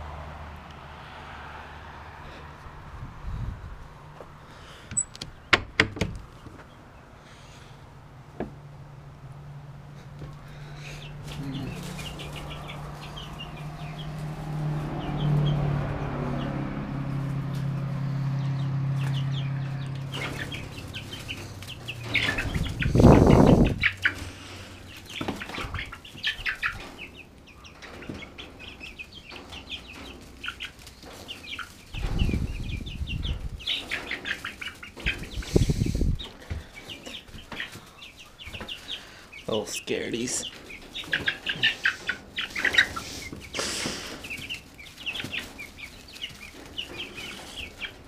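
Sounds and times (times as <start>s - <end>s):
chicks peeping: 6.2s - 48.0s
wings flapping: 11.2s - 14.9s, 20.0s - 27.1s, 40.5s - 48.0s.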